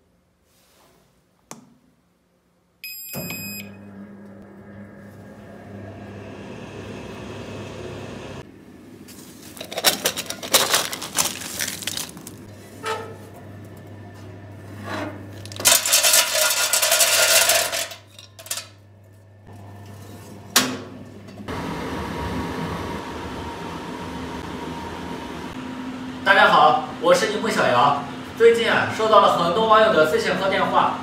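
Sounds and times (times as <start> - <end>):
stove fan running: 3.6 - 31.0
pellets clattering on sheet metal: 9.5 - 12.4, 15.5 - 18.7.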